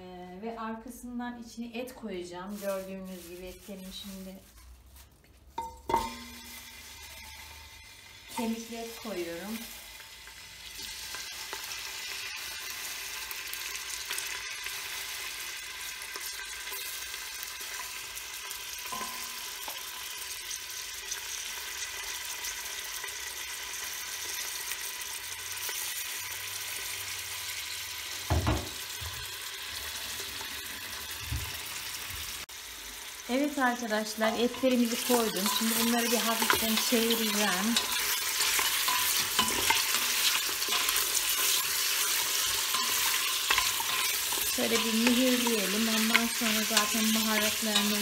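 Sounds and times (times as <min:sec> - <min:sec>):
meat sizzling in hot oil: 0:05.6 - 0:48.0.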